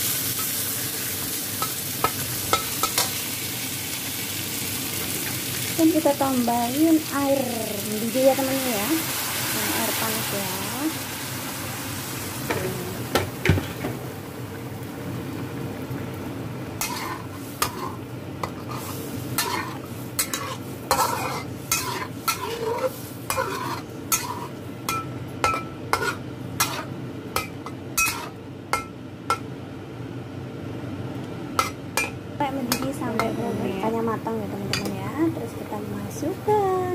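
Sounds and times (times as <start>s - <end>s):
water hissing in hot wok: 0.0s - 13.5s, 16.8s - 24.5s
curry simmering: 14.2s - 24.7s
metal spatula scraping wok: 16.8s - 26.9s, 28.0s - 28.4s.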